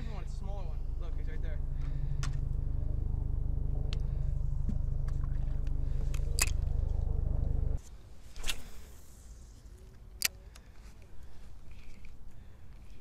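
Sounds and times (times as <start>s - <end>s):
boat motor humming: 0.0s - 7.8s.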